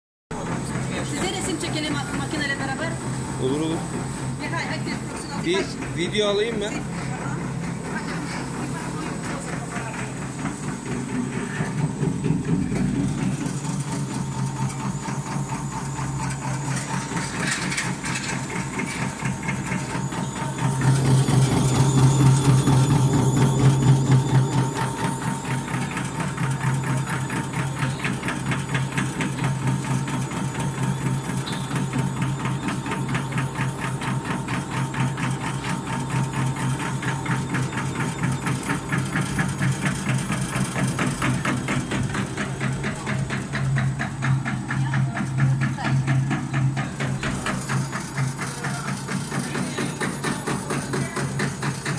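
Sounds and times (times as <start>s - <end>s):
motor hum: 0.4s - 51.9s
dicing machine clatter: 16.2s - 51.9s.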